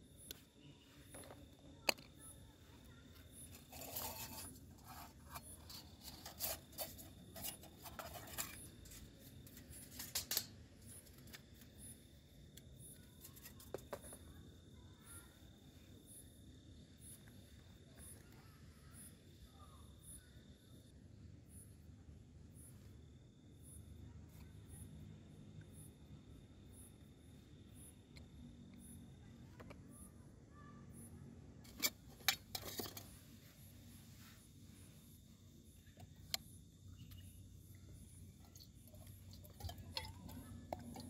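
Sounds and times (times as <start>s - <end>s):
insect trill: 0.0s - 21.9s, 30.8s - 41.0s.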